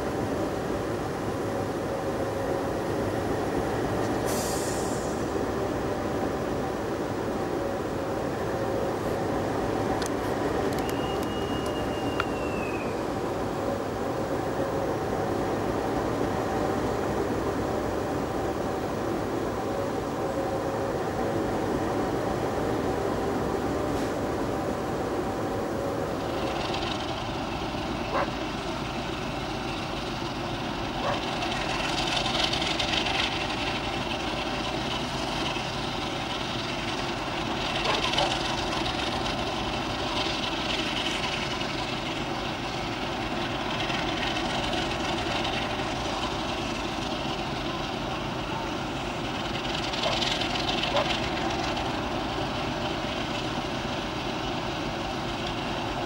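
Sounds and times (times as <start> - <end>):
locomotive engine idling: 0.0 - 56.0
hiss: 4.0 - 5.4.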